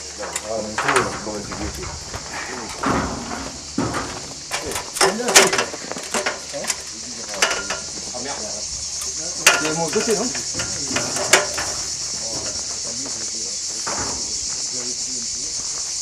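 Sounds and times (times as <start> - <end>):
insects chirring: 0.0 - 16.0
sharp knocks: 0.8 - 6.5, 9.4 - 12.7.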